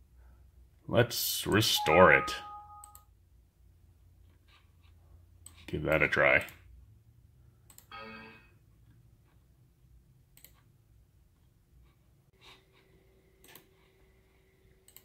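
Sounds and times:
computer mouse clicks: 7.6s - 7.9s, 10.3s - 10.7s, 13.4s - 13.7s.

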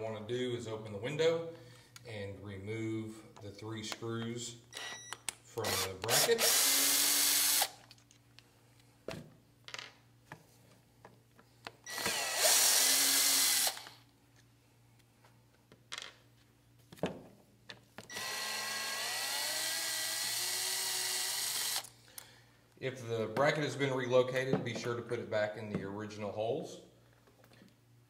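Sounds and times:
cordless drill motor whining: 5.6s - 7.8s, 11.8s - 14.0s, 18.1s - 21.9s.

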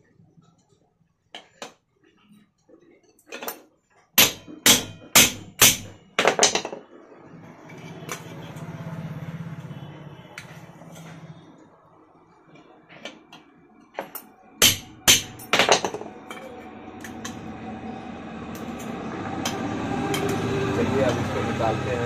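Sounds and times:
hammer striking steel punch: 4.2s - 6.0s, 14.6s - 16.4s.

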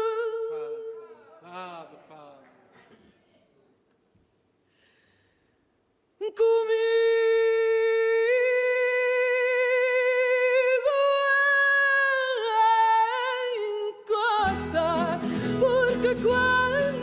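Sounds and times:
woman singing long notes: 6.2s - 17.0s.

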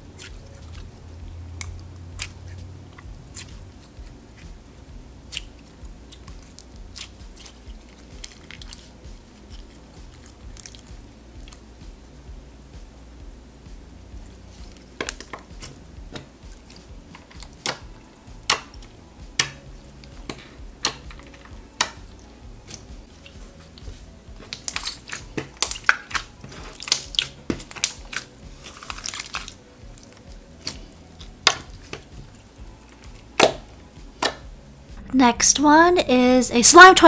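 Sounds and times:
slime popping and squishing: 5.3s - 11.6s, 22.6s - 32.2s, 32.9s - 34.4s.

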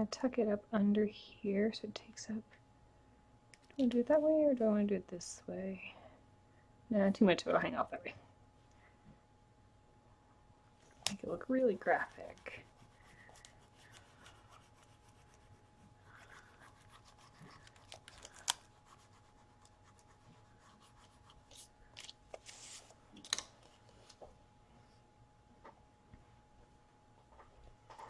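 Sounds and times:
stick scratching and rubbing paper: 11.1s - 18.1s.

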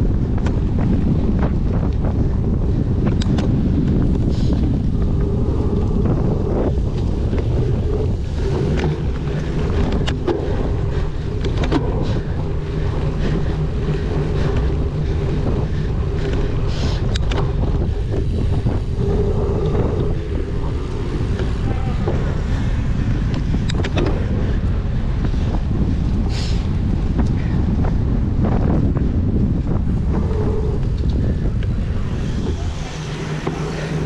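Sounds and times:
wind buffeting microphone: 0.0s - 34.0s
faint clicks: 16.1s - 18.3s.

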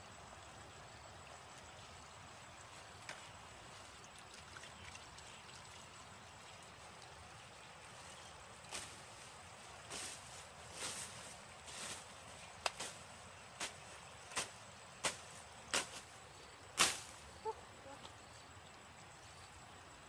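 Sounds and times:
machete slashing through grass: 13.6s - 16.1s, 16.8s - 17.2s.

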